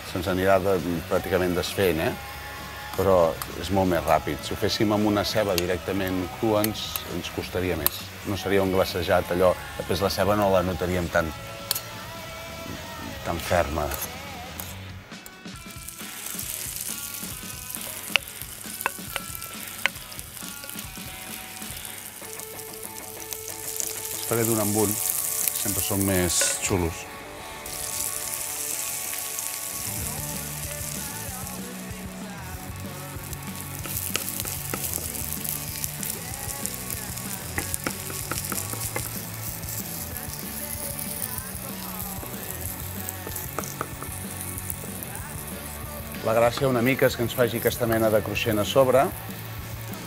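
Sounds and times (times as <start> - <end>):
hot oil sizzling in a pan: 0.0 - 50.0
sharp ticks: 16.1 - 25.7, 32.9 - 45.2.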